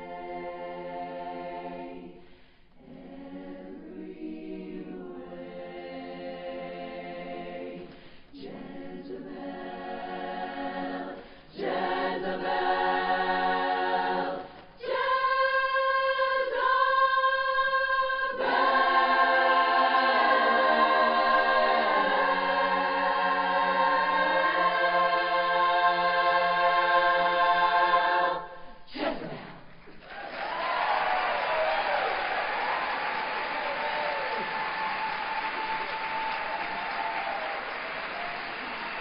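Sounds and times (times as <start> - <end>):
women's chorus singing in harmony: 0.0 - 29.4
singers breathing: 2.2 - 2.8, 7.9 - 8.3, 11.2 - 11.5.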